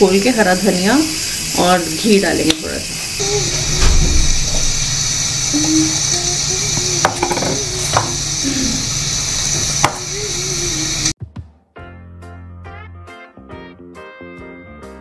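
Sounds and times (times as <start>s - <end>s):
kitchen hiss: 0.0s - 11.2s
low hum: 3.2s - 6.9s
steel bowls and utensils clinking: 5.5s - 8.6s.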